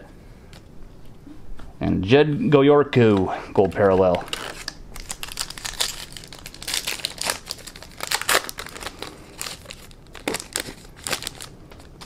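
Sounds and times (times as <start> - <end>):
foil wrapper crinkling and tearing: 3.6 - 12.0.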